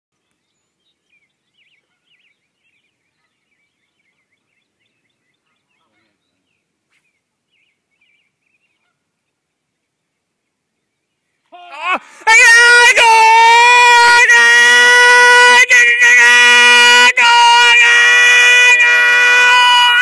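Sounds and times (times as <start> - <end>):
birds chirping: 0.2 - 12.2.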